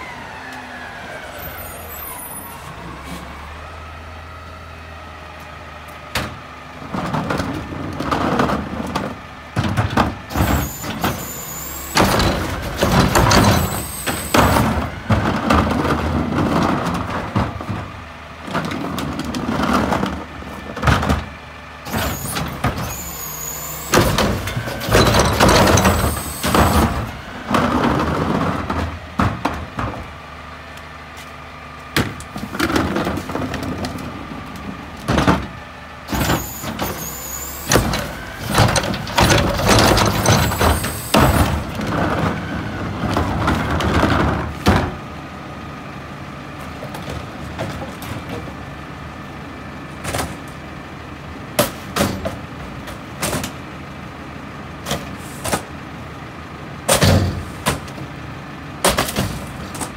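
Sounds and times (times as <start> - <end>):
rising hydraulic whine: 0.0 - 5.6, 10.3 - 14.9, 21.9 - 27.2, 36.1 - 41.5
trash cart banging: 6.1 - 21.3, 21.9 - 30.2, 35.0 - 45.1, 56.8 - 57.9
garbage truck engine revving: 32.5 - 46.5.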